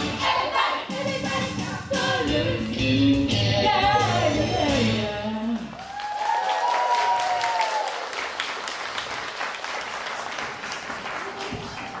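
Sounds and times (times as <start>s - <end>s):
audience applauding: 5.7s - 12.0s.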